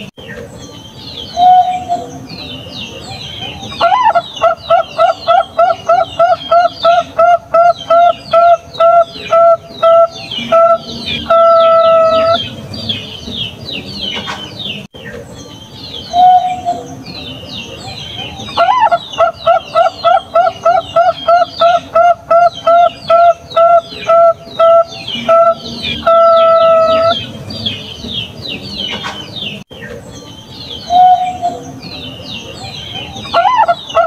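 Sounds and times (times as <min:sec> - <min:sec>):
small birds chirping: 0:00.0 - 0:34.0
dove cooing: 0:03.4 - 0:12.6, 0:18.2 - 0:27.4, 0:32.9 - 0:34.0.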